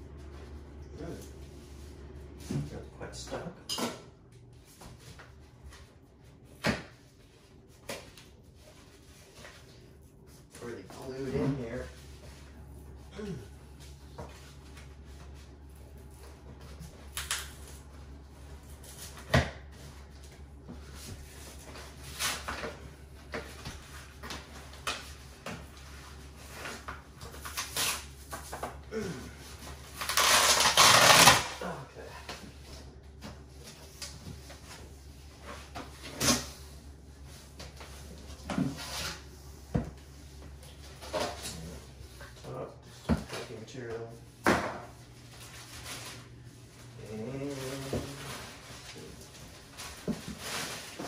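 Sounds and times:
low steady hum: 0:00.0 - 0:51.0.

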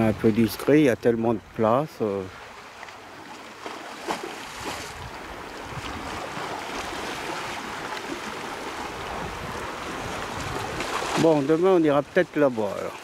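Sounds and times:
waves lapping on rocky shore: 0:02.2 - 0:13.0
wind rumble on microphone: 0:04.5 - 0:11.2.

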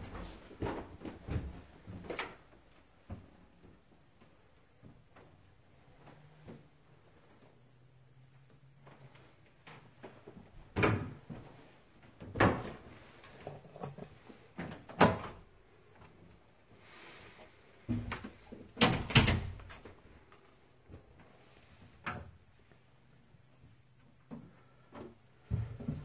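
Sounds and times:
wooden doors knocking and clicking: 0:14.6 - 0:15.4, 0:17.9 - 0:19.8.

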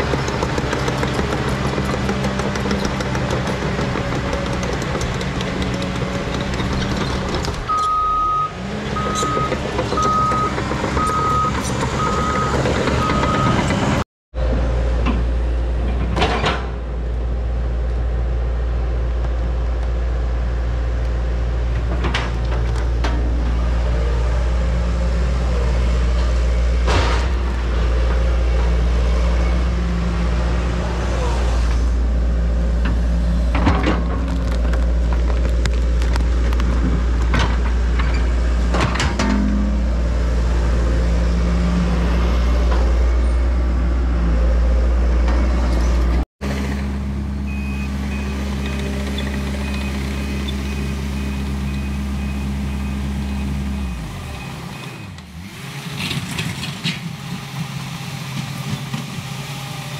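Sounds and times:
clunks and scrapes: 0:00.0 - 0:08.0, 0:15.0 - 0:16.9, 0:21.7 - 0:23.8, 0:32.8 - 0:39.9, 0:55.9 - 0:59.3
diesel engine rumble: 0:00.0 - 0:59.9
excavator engine running: 0:00.0 - 0:59.9.

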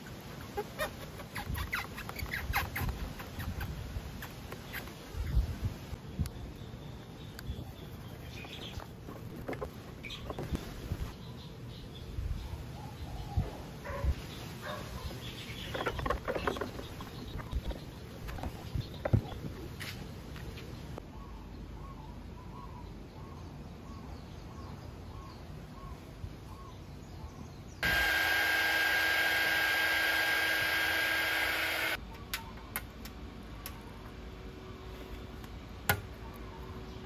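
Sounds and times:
heat gun whining: 0:27.8 - 0:32.0.

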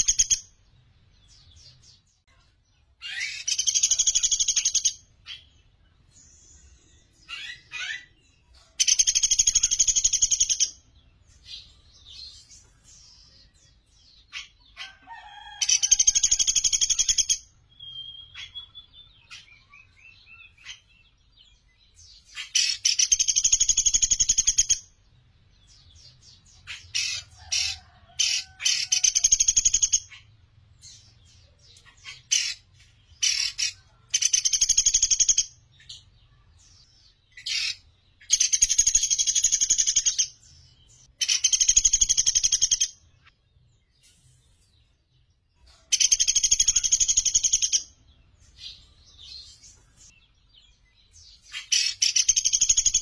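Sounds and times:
woodpecker rattling trills: 0:41.2 - 0:42.9.

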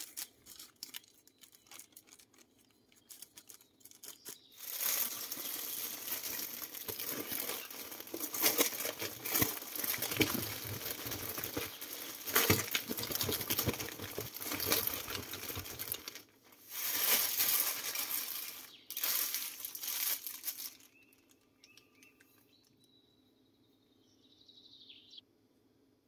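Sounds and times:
plastic bag crinkling: 0:00.0 - 0:21.8
potato slices tumbling: 0:03.0 - 0:20.8.

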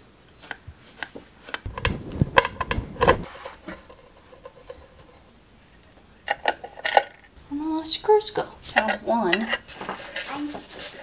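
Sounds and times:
clicks and knocks of hands handling objects: 0:00.3 - 0:07.4.

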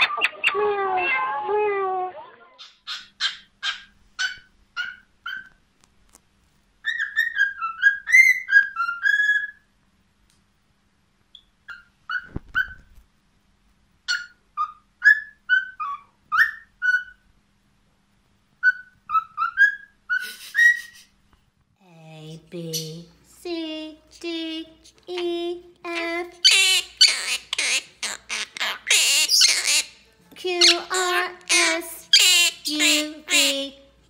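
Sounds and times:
cockatiel whistling and chirping: 0:02.6 - 0:05.6, 0:06.8 - 0:09.7, 0:11.4 - 0:12.9, 0:14.1 - 0:17.2, 0:18.6 - 0:21.0.

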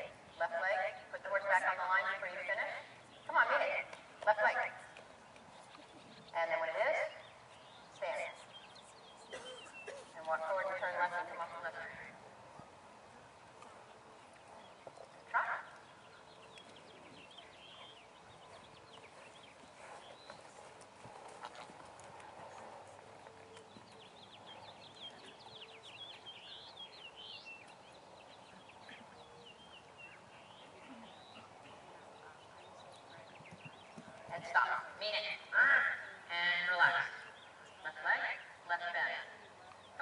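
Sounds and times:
hoofbeats on sand: 0:16.3 - 0:28.0, 0:32.6 - 0:34.8.

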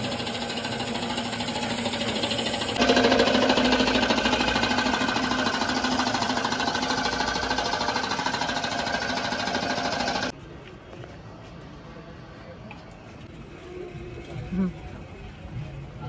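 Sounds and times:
small machine rattling and humming: 0:00.0 - 0:10.3.

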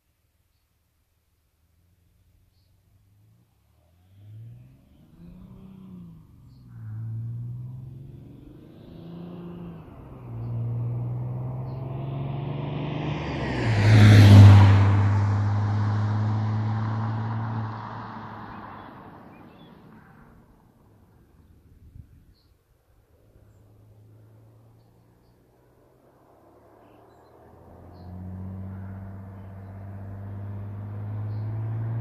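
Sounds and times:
diesel car accelerating through gears: 0:03.2 - 0:20.4, 0:23.4 - 0:32.0.

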